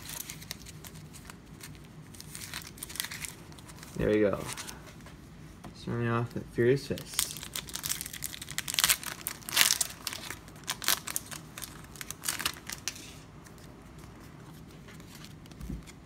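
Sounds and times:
foil wrapper crinkling and tearing: 0.0 - 4.8, 6.9 - 13.2.

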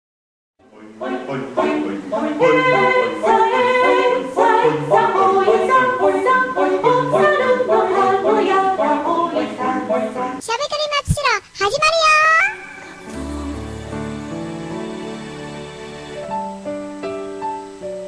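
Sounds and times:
sung theme tune: 12.5 - 18.0.

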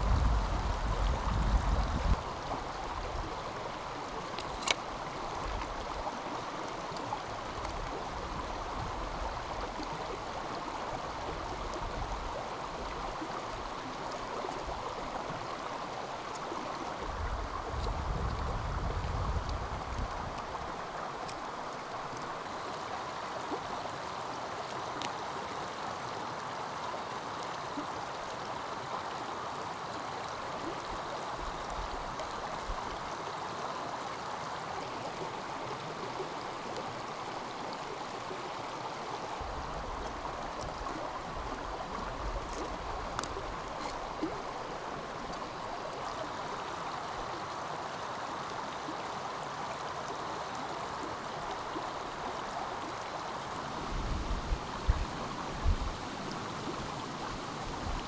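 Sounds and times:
stream flowing: 0.0 - 58.0
faint clicks: 25.0 - 25.2.

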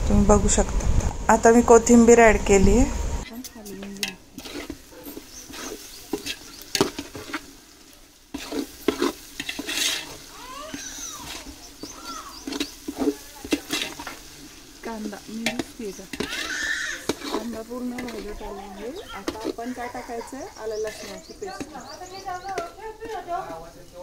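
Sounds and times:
onions sizzling: 0.1 - 24.0
ladle scraping metal pot: 3.3 - 7.6, 8.3 - 23.7.

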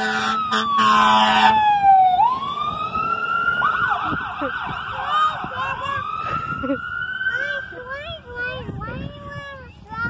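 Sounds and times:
fire engine air horn blaring: 0.0 - 2.4
siren wailing and yelping: 0.0 - 7.9.

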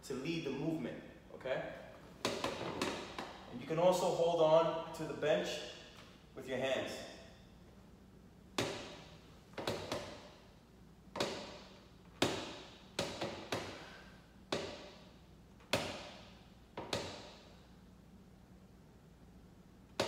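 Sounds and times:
sharp knocks with room echo: 2.2 - 3.5, 8.6 - 10.4, 11.1 - 17.6.

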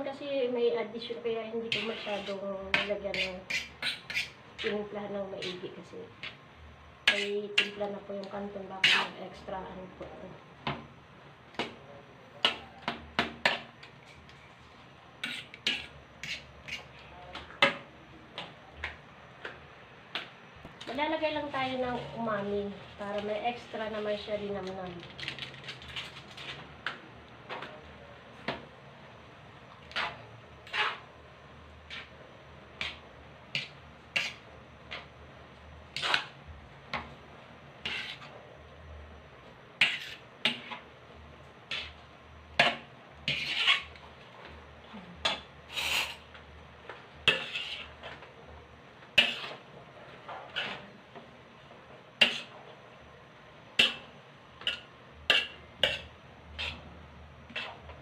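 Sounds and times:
utensil scraping metal wok: 1.6 - 6.4, 7.0 - 7.9, 8.7 - 9.5, 13.4 - 17.8, 29.8 - 31.1, 31.8 - 35.1, 35.9 - 36.5, 37.8 - 38.4, 39.7 - 40.9, 41.6 - 44.2, 45.2 - 46.4, 47.1 - 48.3, 49.1 - 51.0, 52.2 - 52.6, 53.8 - 56.9, 57.5 - 58.0.

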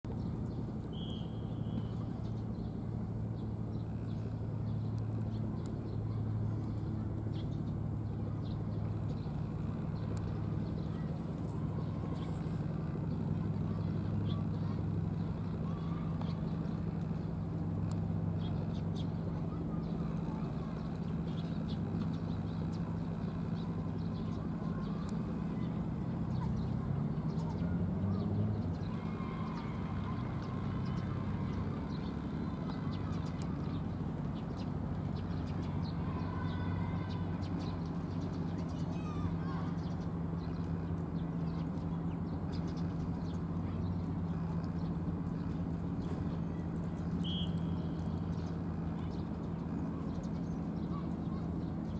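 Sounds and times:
low mechanical hum: 0.1 - 51.9
faint high chirps: 0.9 - 2.2, 47.1 - 48.3.

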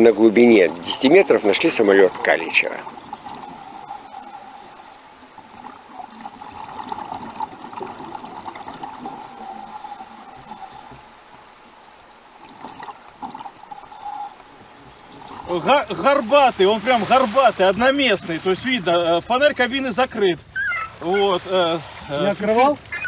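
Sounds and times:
underwater background: 0.0 - 23.0
diver breathing through regulator: 3.3 - 5.2, 9.0 - 11.1, 13.7 - 14.4.

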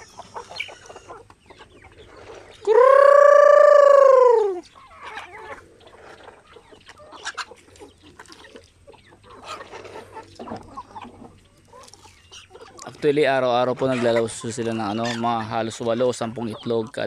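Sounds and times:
chickens clucking softly: 0.0 - 17.0
short chicken calls: 2.4 - 5.6
loud drawn-out chicken call: 2.6 - 5.2.

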